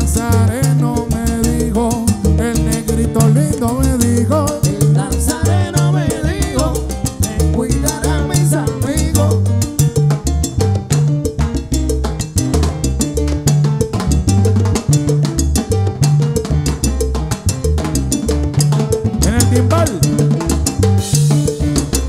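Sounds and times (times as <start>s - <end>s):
bass line: 0.0s - 22.0s
latin percussion: 0.0s - 22.0s
salsa band playing: 0.0s - 22.0s.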